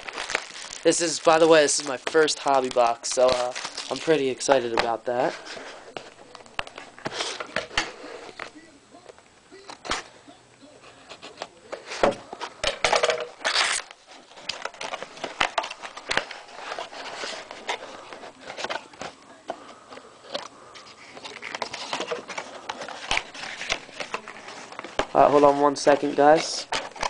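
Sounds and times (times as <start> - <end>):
wrapping tearing: 0.0 - 4.6, 13.4 - 19.0, 20.2 - 27.0
wrapping crinkling and rustling: 0.0 - 8.7, 13.2 - 27.0.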